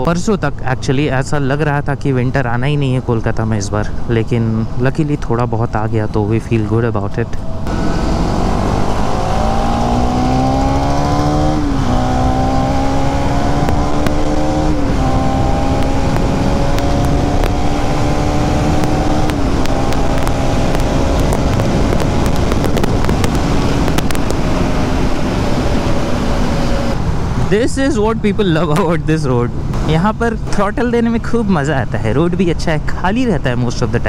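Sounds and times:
wind noise: 1.9 - 33.1
motorcycle engine accelerating: 7.4 - 31.3.

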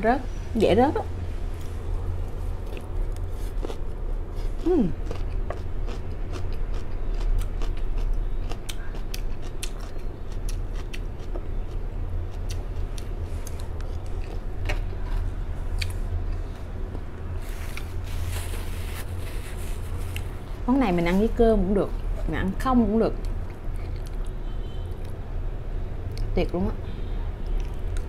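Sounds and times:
steady low hum: 0.0 - 28.0
chewing crisp salad: 2.3 - 20.5, 23.2 - 25.2.

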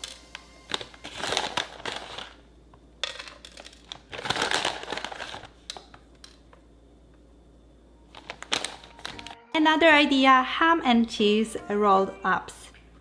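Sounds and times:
plastic snack pouch crinkling: 0.0 - 2.4, 3.1 - 6.0, 8.1 - 9.4.

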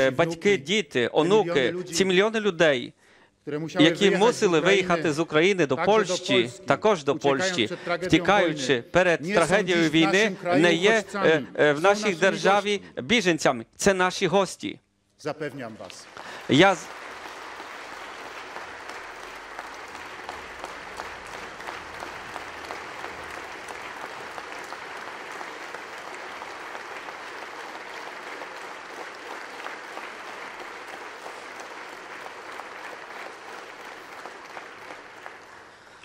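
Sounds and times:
large audience applauding: 15.5 - 36.0.

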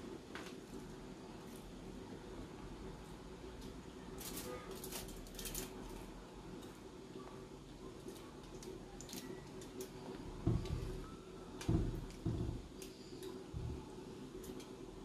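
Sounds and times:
aluminium foil crackling: 4.0 - 6.7, 7.9 - 10.3.

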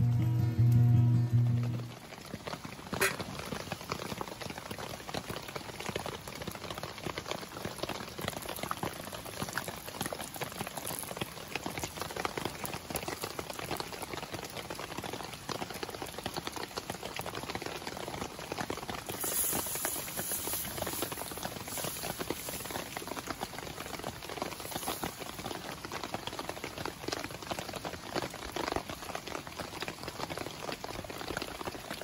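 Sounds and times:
wood fire crackling: 0.0 - 28.8
rain pattering: 0.0 - 32.0
butter sizzling in a pan: 19.0 - 26.4.

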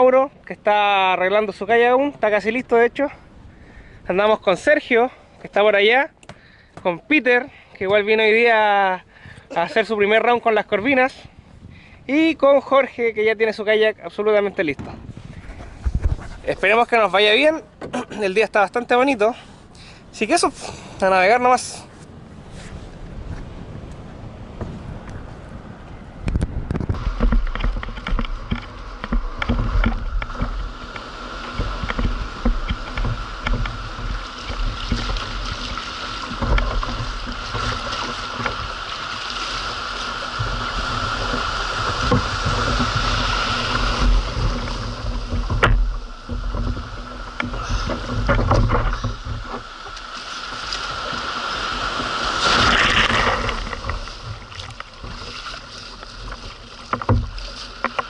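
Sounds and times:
wind buffeting microphone: 7.8 - 13.3, 13.9 - 17.8, 19.9 - 58.0
paddle strokes through waves: 14.6 - 58.0
water splashing around kayak hull: 22.0 - 58.0.

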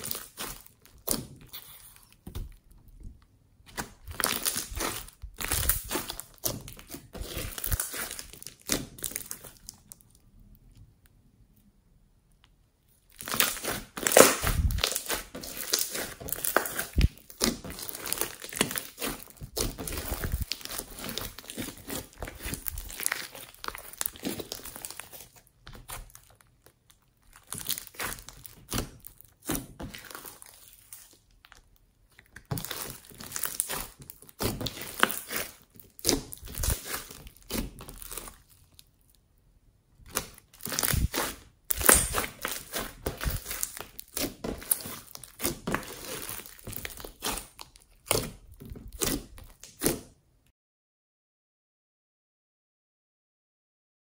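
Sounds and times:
foam-bead slime crackling: 0.0 - 2.2, 3.8 - 10.1, 13.0 - 31.7, 32.3 - 39.1, 40.0 - 49.9.

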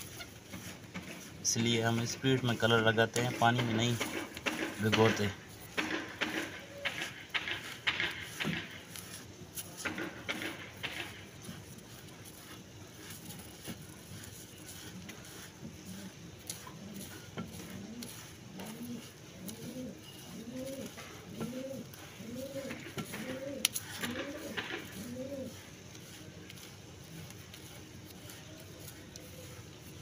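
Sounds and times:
pigeon cooing: 16.8 - 25.6.

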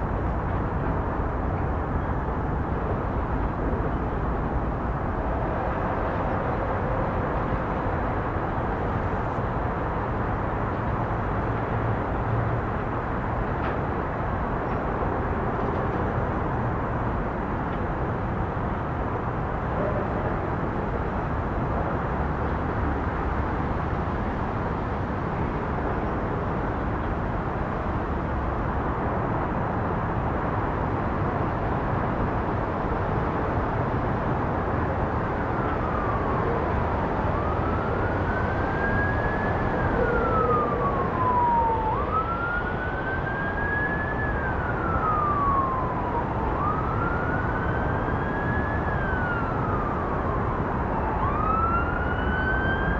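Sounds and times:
siren wailing: 35.4 - 52.9.

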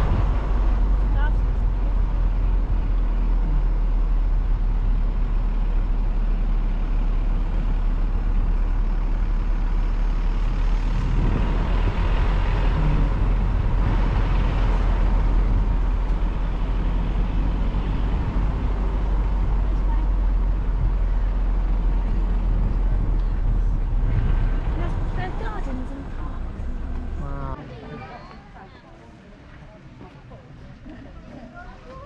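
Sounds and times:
wind buffeting microphone: 0.0 - 5.4, 7.4 - 27.6.

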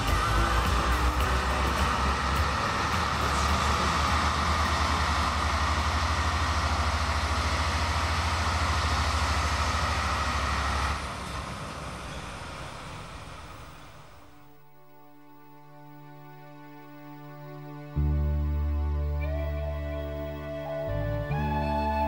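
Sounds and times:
diesel locomotive engine idling: 0.0 - 14.6.

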